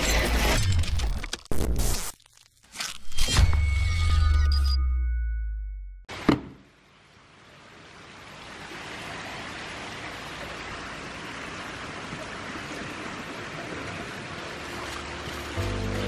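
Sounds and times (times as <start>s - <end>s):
running water: 6.8s - 16.0s.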